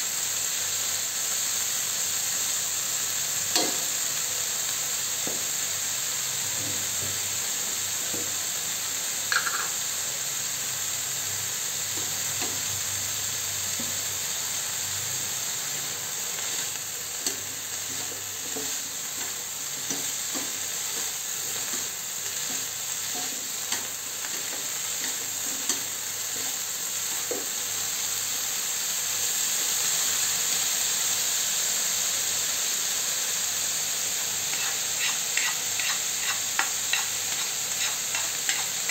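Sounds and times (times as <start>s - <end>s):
food sizzling in pan: 0.0s - 38.9s
spoon clicking and scraping pan: 9.3s - 9.8s, 34.5s - 38.9s.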